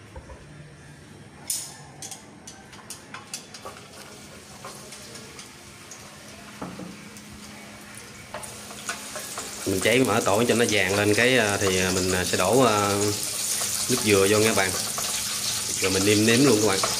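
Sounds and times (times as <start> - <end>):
oil sizzling in a pan: 3.6 - 16.9.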